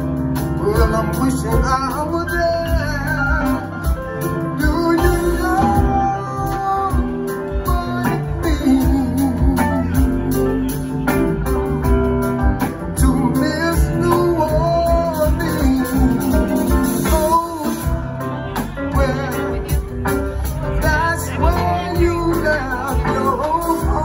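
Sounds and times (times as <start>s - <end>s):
drum kit: 0.0s - 24.0s
electric guitar: 0.0s - 24.0s
keyboard: 0.0s - 24.0s
person singing: 0.0s - 24.0s.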